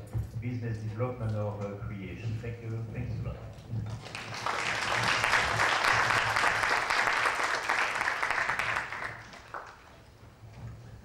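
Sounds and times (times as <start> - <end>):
audience applauding: 3.9 - 10.2.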